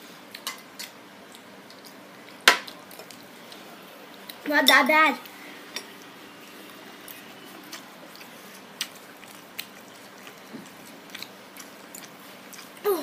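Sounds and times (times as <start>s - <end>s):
child chewing food: 0.0s - 13.0s.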